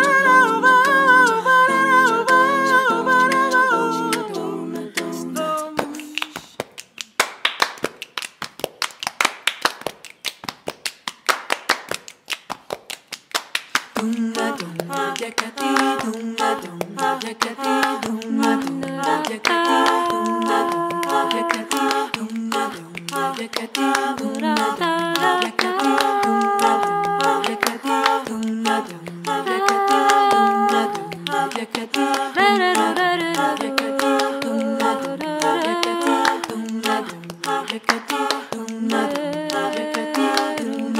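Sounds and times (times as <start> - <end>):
women singing a cappella harmony: 0.0 - 6.6, 14.0 - 40.9
hands clapping in rhythm: 0.0 - 40.9.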